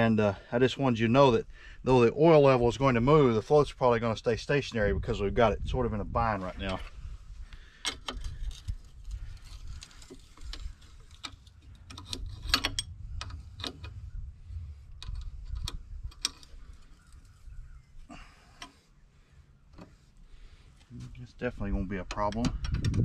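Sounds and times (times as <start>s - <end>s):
low rumble: 8.3s - 18.4s.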